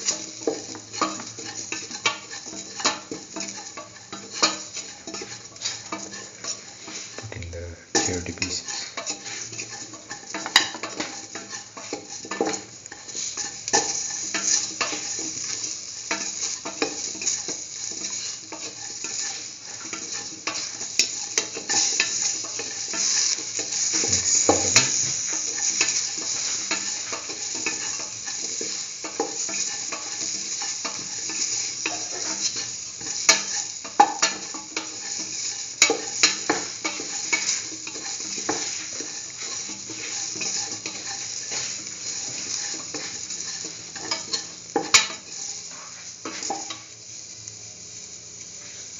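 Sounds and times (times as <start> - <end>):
vegetables sizzling in oil: 0.0 - 48.9
utensil scraping and knocking pan: 17.9 - 31.0.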